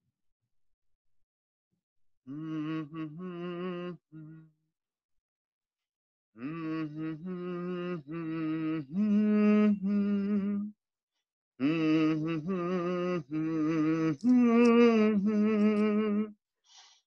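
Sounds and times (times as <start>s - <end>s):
voices humming slow tune: 2.3s - 4.5s, 6.4s - 10.7s, 11.6s - 16.3s.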